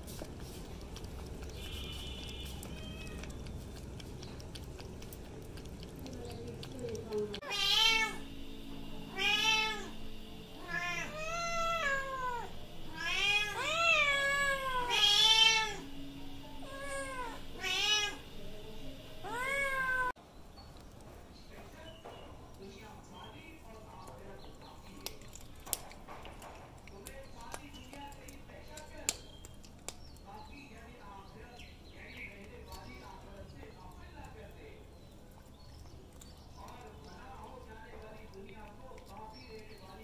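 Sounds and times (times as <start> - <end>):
kitten meowing loudly: 7.4 - 8.2, 9.1 - 9.9, 10.6 - 15.8, 16.6 - 18.2.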